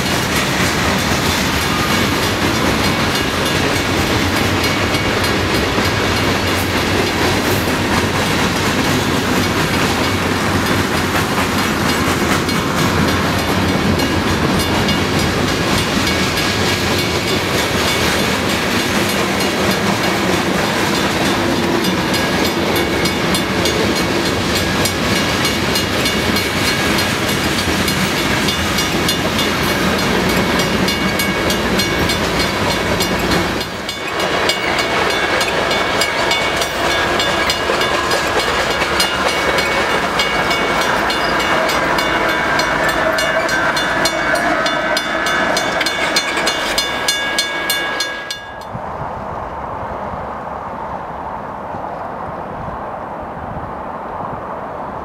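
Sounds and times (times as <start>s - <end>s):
wheels clicking over rail joints: 0.0s - 48.8s
train rumbling past: 0.0s - 55.0s
high ringing tones: 33.8s - 48.8s.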